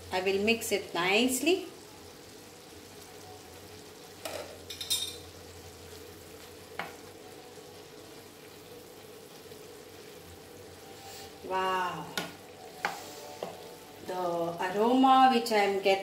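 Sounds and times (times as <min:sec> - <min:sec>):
spoon scraping and clinking: 0:04.7 - 0:05.2.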